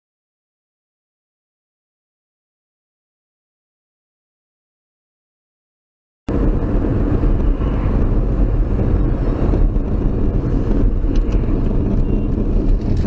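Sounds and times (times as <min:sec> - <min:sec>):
car engine and tyre rumble: 0:06.3 - 0:13.0.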